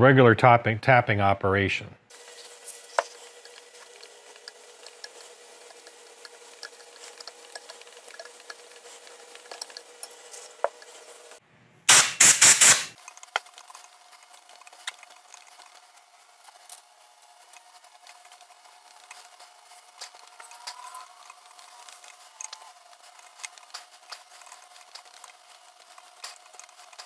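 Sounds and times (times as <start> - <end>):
tap ticking and scraping: 2.9 - 11.0.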